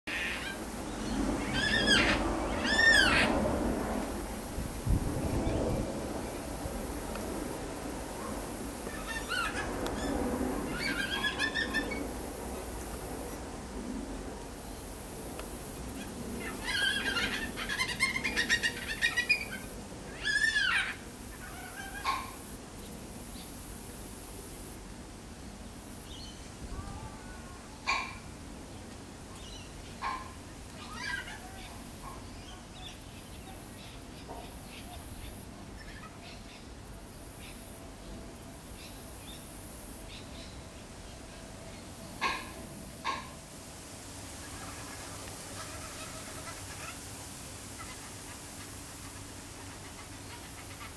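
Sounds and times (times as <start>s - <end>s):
cockatoo calling: 1.4s - 3.4s, 8.8s - 12.3s, 16.0s - 22.4s, 26.8s - 28.3s, 30.0s - 32.2s, 42.2s - 43.4s, 44.4s - 47.1s.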